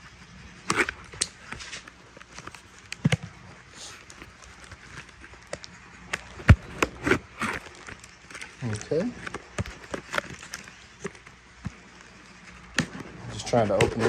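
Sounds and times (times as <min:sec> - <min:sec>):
cardboard box being handled: 0:00.6 - 0:11.8.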